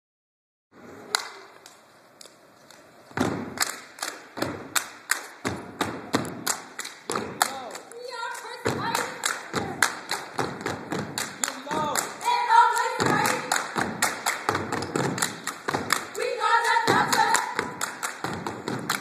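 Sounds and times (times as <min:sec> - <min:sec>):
stomps and hand claps: 0:03.1 - 0:19.0
voices chanting: 0:11.7 - 0:13.7, 0:16.0 - 0:17.9.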